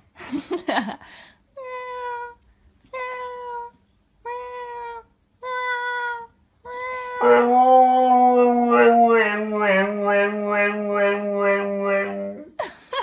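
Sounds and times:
dog howling: 6.8s - 12.5s.

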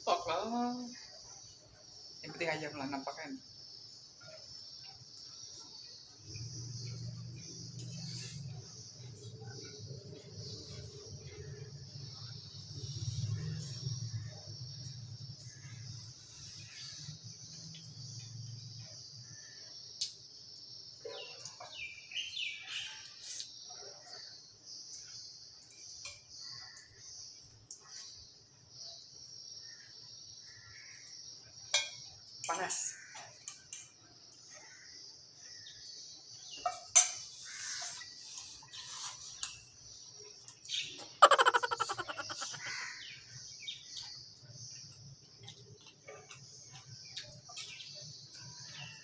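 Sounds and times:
high insect trill: 0.0s - 49.0s
high-pitched insect trilling: 40.7s - 43.2s
quick falling chirps: 41.2s - 42.7s.

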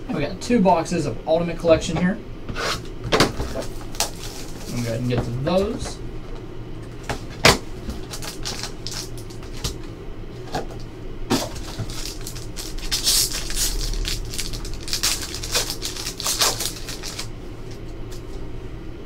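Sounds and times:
foil wrapper crinkling and tearing: 3.4s - 5.4s, 7.5s - 9.9s, 11.3s - 18.3s.

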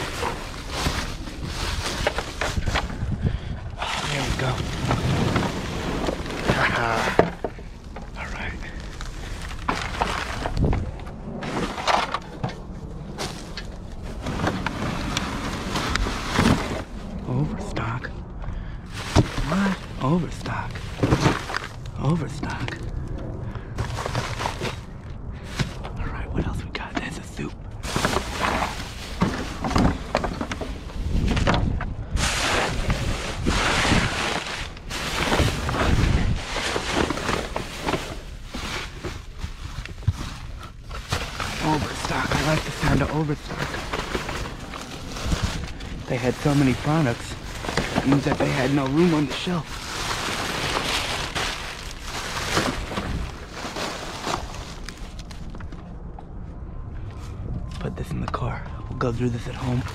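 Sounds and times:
plastic bags rustling: 0.0s - 17.1s, 18.8s - 23.0s, 23.6s - 26.0s, 27.8s - 55.8s, 59.4s - 59.9s
knocks and clicks of moved items: 27.9s - 31.9s.

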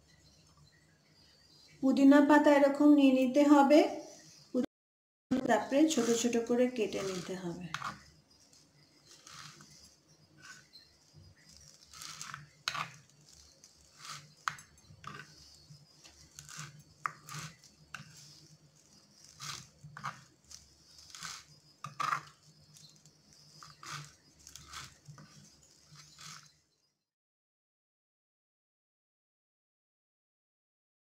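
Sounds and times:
knife chopping on wooden board: 21.0s - 22.3s.

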